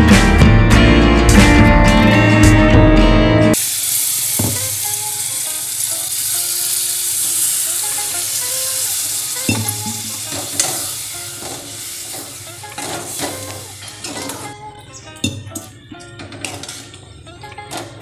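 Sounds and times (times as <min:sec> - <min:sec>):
food sizzling and hissing: 0:03.6 - 0:14.6.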